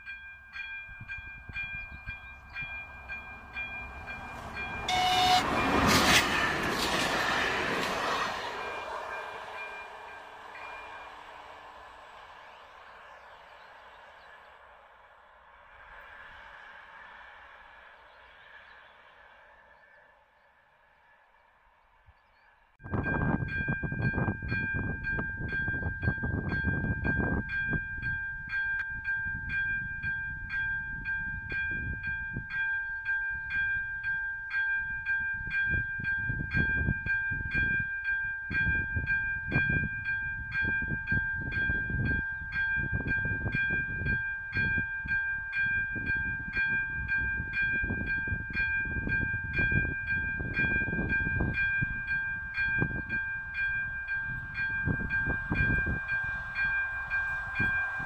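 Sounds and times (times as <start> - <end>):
level crossing bell ringing: 0.0 - 5.8, 40.3 - 58.0.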